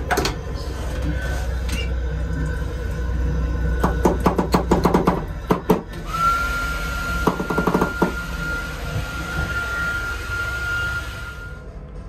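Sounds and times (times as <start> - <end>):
high squeal: 7.9 - 11.8.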